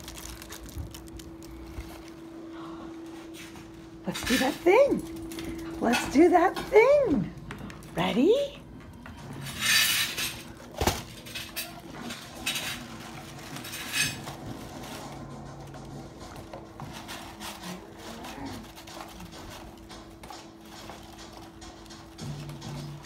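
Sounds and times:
packing paper rustling and crinkling: 0.0s - 2.4s, 10.4s - 23.0s.

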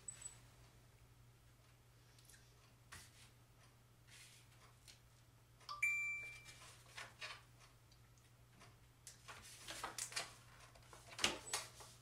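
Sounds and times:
low steady hum: 0.0s - 12.0s
smartphone chime: 5.7s - 6.6s.

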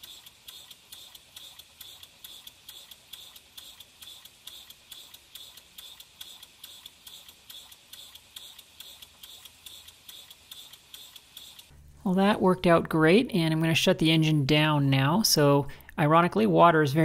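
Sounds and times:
model steam engine ticking and puffing: 0.0s - 11.8s.

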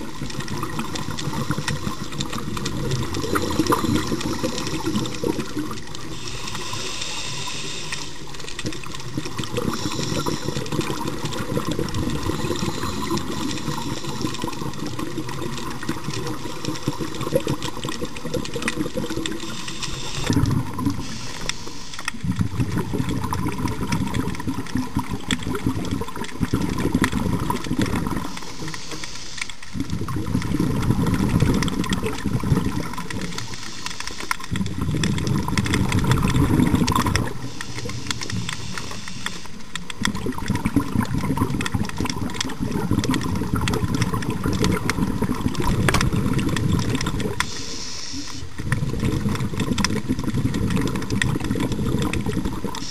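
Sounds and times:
lobster clicks and rattles: 0.0s - 52.9s
rush of exhaled bubbles: 0.0s - 52.9s
regulator hiss on inhalation: 3.2s - 8.7s, 9.3s - 17.8s, 19.1s - 22.2s, 27.4s - 29.8s, 33.2s - 34.6s, 37.0s - 39.8s, 47.4s - 48.6s, 52.7s - 52.9s.

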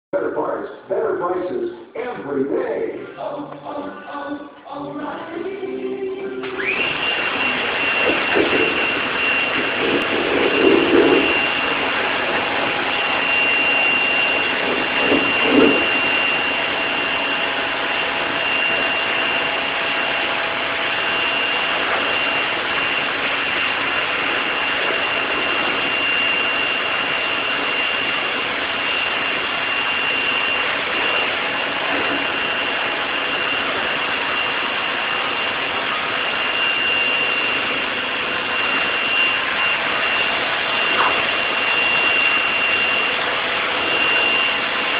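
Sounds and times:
pressure washer spraying: 6.4s - 35.8s.

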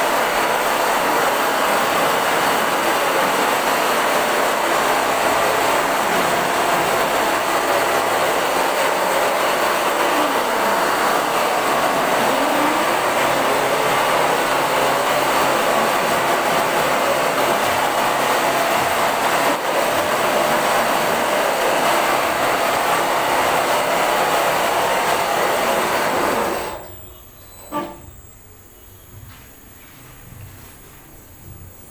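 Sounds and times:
quilting machine running: 0.0s - 28.1s.

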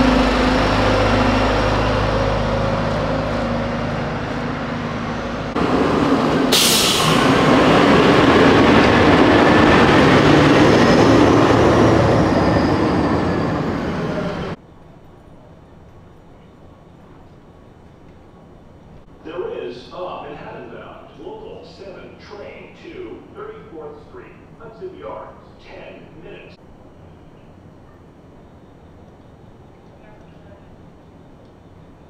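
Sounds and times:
diesel engine idling: 0.0s - 14.6s
heavy vehicle rumble: 0.0s - 19.4s
air brake hiss: 6.4s - 7.4s.

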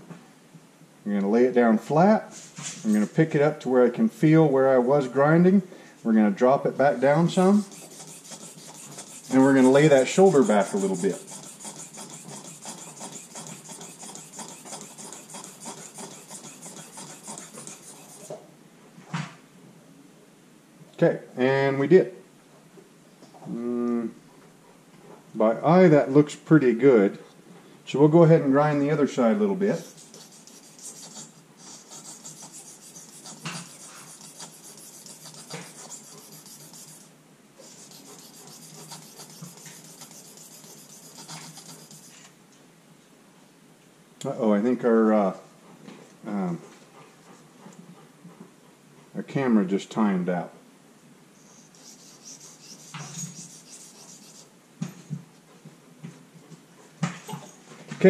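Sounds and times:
blade rasping on sharpening stone: 7.3s - 18.4s, 29.7s - 42.2s, 51.4s - 54.5s.

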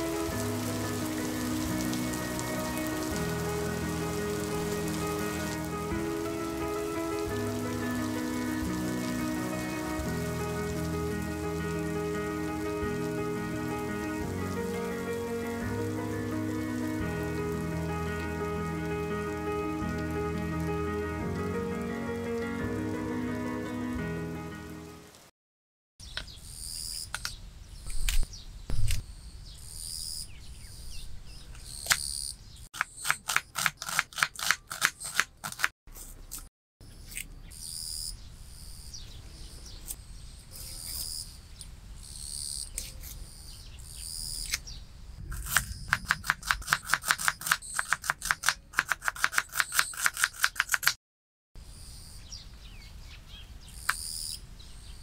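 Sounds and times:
small birds chirping: 26.0s - 33.2s, 36.2s - 46.2s, 47.2s - 48.4s, 51.7s - 55.0s.

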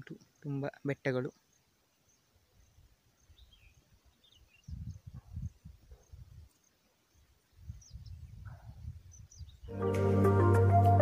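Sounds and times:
faint bird chirps: 0.0s - 9.8s
wind buffeting microphone: 3.3s - 6.5s, 7.5s - 9.7s.

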